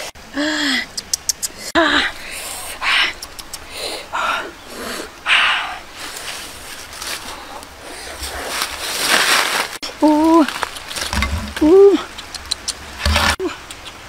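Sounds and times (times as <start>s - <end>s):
woman humming: 0.3s - 5.8s, 11.5s - 12.2s
leafy branches rustling: 1.5s - 13.4s.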